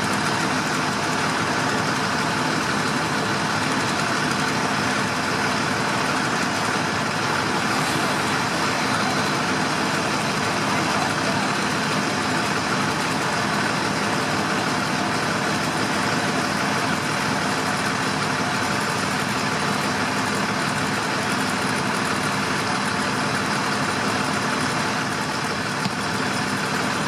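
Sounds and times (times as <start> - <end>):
fire engine motor and pump: 0.0 - 27.0
water hissing from fire hose: 6.0 - 14.4.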